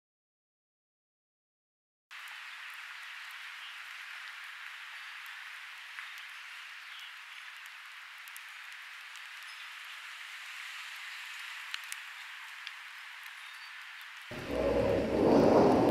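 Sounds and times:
steady hiss: 2.2s - 15.9s
faint ticks: 11.3s - 15.9s.

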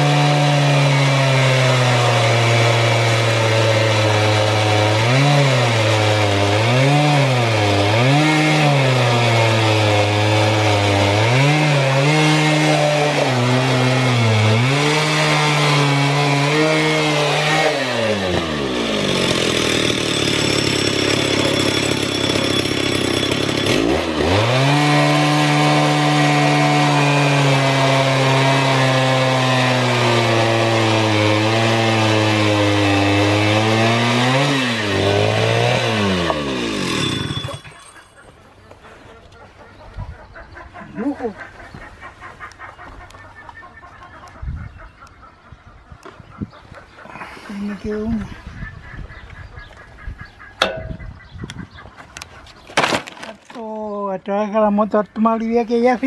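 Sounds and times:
chainsaw cutting log: 0.0s - 38.3s, 52.8s - 53.6s.

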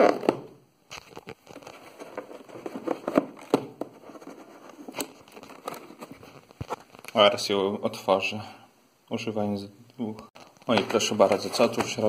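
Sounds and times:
hands handling cardboard box: 0.0s - 7.2s, 10.4s - 12.0s.

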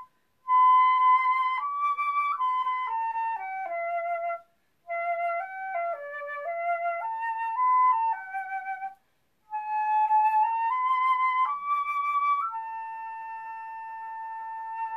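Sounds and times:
solo flute playing slow melody: 0.0s - 14.9s.

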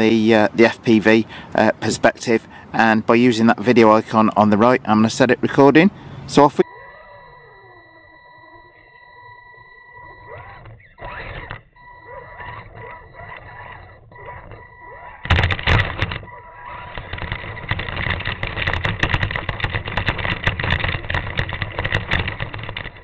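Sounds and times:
rc car clattering down steps: 14.8s - 23.0s.

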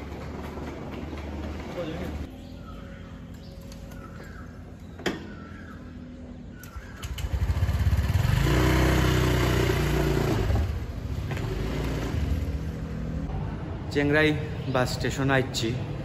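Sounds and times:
scooter engine idling and revving: 0.0s - 3.3s, 4.6s - 13.3s.

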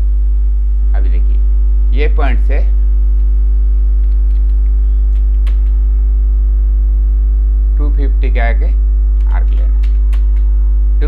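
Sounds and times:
electrical mains hum: 0.0s - 11.0s
faint clicks: 4.0s - 5.8s.

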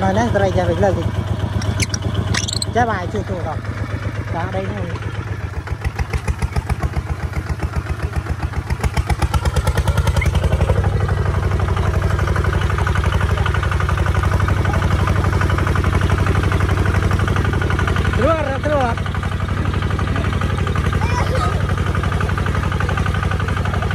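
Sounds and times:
diesel tractor engine chugging: 0.0s - 23.9s.

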